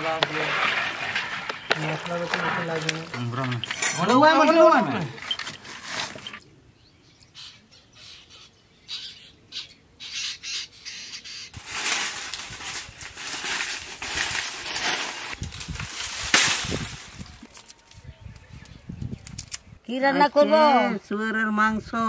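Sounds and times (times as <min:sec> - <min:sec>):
palm fronds rustling on dry leaves: 0:00.0 - 0:06.4, 0:11.6 - 0:18.0.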